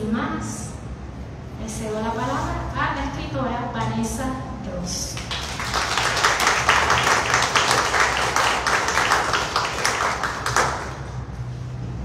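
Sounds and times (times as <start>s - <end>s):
audience applauding: 5.2s - 11.2s.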